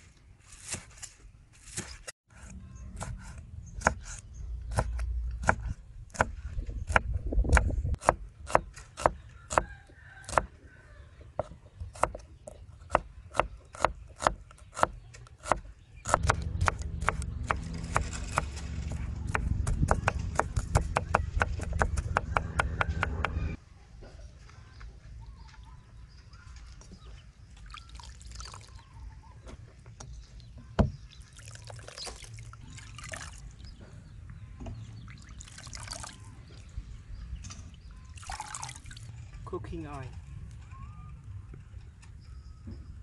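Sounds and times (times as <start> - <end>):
low rumble: 16.2 - 23.6
knife chopping on wooden board: 19.3 - 23.4.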